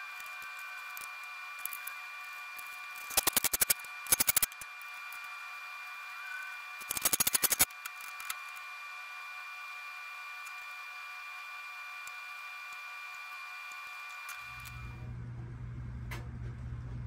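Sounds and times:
ratchet wrench clicking: 0:03.0 - 0:04.7, 0:06.8 - 0:08.4.

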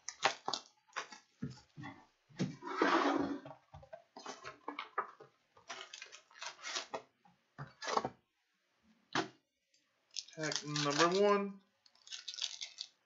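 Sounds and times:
foil packs rustling: 0:05.7 - 0:07.0
plastic wrap crinkling and tearing: 0:05.7 - 0:07.0, 0:10.1 - 0:13.0.

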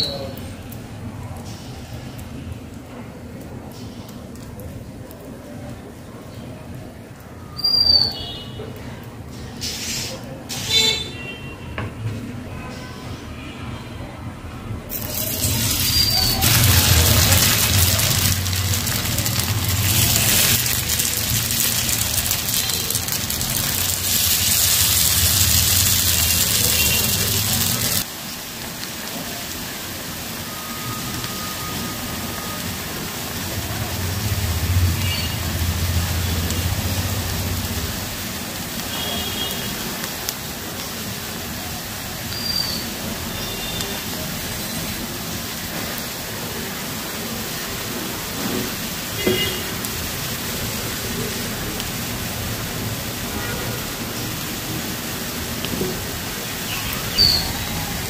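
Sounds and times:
patties sizzling in hot oil: 0:14.9 - 0:58.0.

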